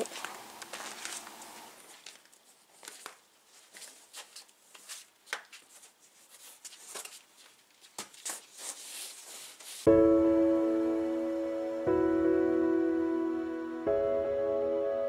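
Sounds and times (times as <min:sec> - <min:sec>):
foam mat rustling and clicking: 0:00.0 - 0:09.9.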